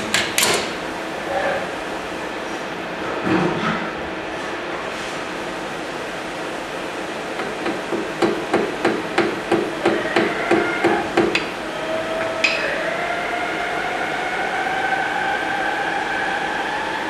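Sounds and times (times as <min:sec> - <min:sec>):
lathe motor whine: 0:07.1 - 0:17.0.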